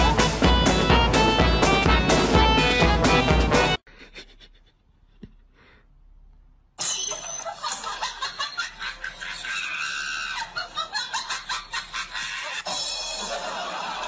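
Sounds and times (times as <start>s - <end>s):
people laughing and shrieking: 7.2s - 14.0s.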